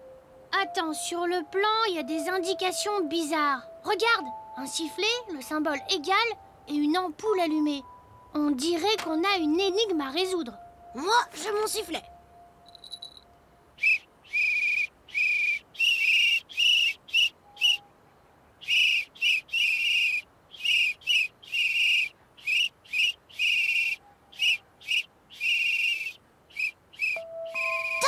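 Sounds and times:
hand whistle blasts: 0:13.8 - 0:17.9, 0:18.7 - 0:28.0.

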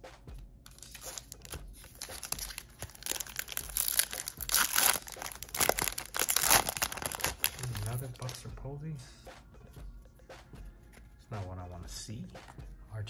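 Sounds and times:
foil wrapper crinkling and tearing: 0:00.7 - 0:08.4.

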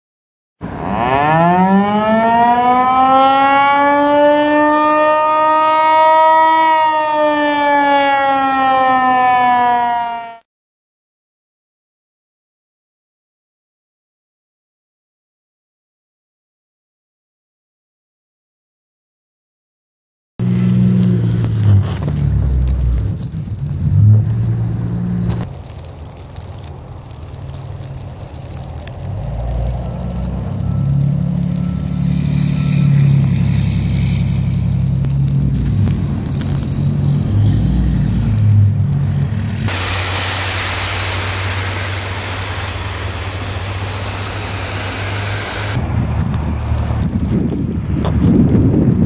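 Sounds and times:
warning siren wailing: 0:00.6 - 0:10.5, 0:20.4 - 0:46.4
low rumble: 0:20.4 - 0:49.0
truck engine running: 0:20.4 - 0:49.0.

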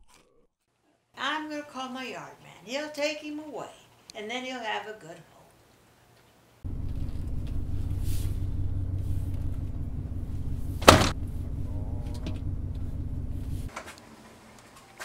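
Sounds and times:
truck engine idling: 0:06.6 - 0:13.7
car door slamming: 0:10.6 - 0:12.5.

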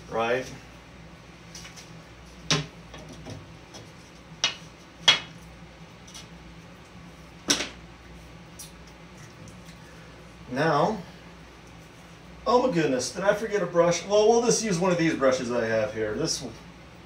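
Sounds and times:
low steady hum: 0:00.0 - 0:17.0.

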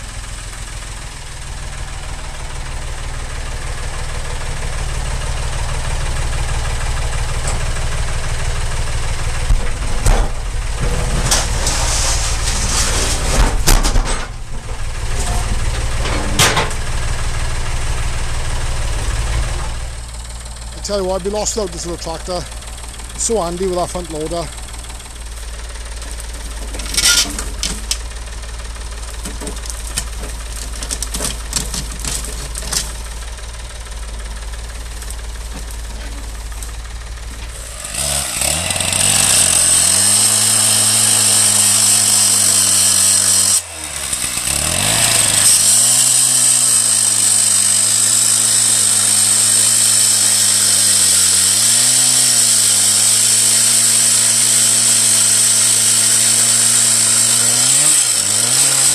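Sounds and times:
tractor engine idling: 0:00.0 - 0:58.9
metal clanks: 0:09.4 - 0:16.9, 0:26.0 - 0:28.2
disc cutter grinding steel: 0:10.8 - 0:13.7, 0:25.4 - 0:28.1, 0:37.4 - 0:58.9.

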